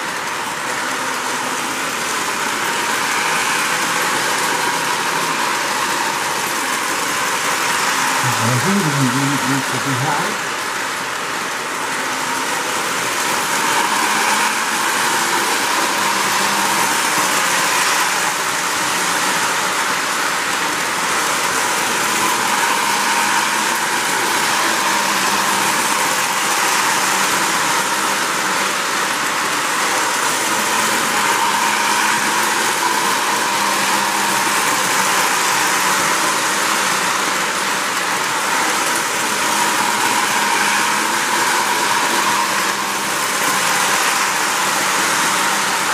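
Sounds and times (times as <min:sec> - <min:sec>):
model train rolling on track: 0:00.0 - 0:45.9.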